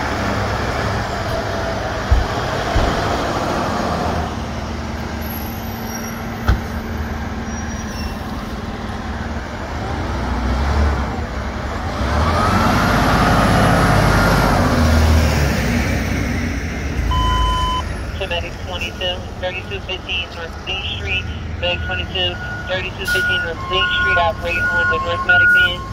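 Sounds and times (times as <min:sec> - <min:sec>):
fire truck diesel engine rumble: 0:00.0 - 0:25.9
engine whine: 0:11.1 - 0:25.9.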